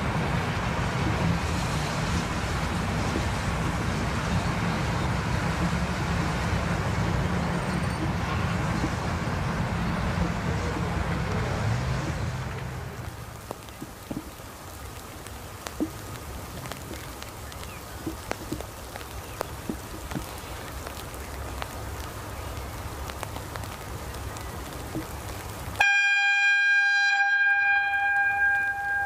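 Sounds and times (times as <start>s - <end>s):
low wind rumble: 0.0s - 25.8s
raindrop ticks: 0.0s - 26.7s, 27.3s - 29.0s
train horn long note: 25.8s - 29.0s.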